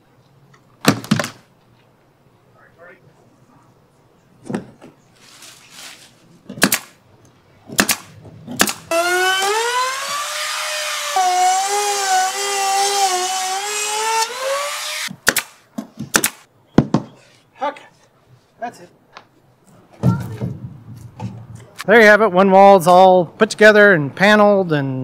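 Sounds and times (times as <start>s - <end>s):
pneumatic nailer shots: 6.5s - 7.0s, 7.7s - 16.5s
router cutting plywood whine: 8.9s - 15.1s.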